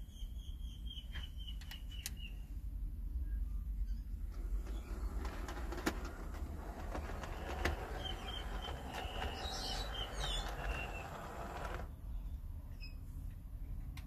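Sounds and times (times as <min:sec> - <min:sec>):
wheels clicking over rail joints: 0:04.3 - 0:11.9
model train motor whir: 0:04.4 - 0:11.9.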